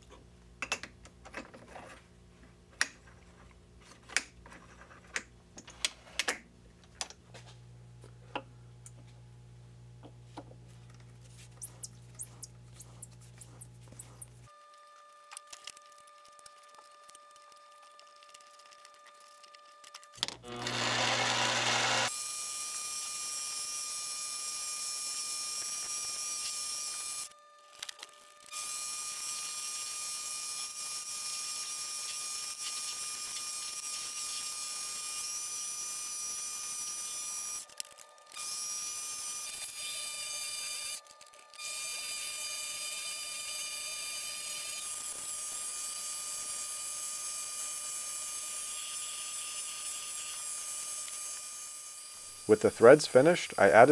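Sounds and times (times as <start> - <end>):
lathe motor whine: 20.2 - 22.1.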